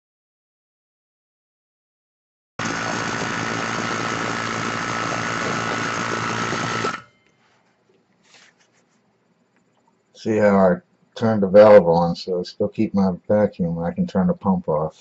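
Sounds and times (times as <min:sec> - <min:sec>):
electric vacuum pump running: 0:02.6 - 0:07.1.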